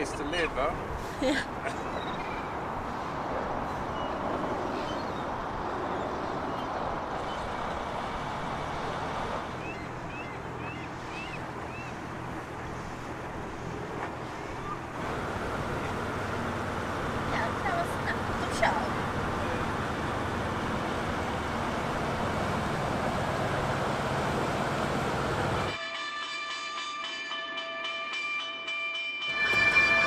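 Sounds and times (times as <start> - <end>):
boat motor rushing: 2.6 - 25.7.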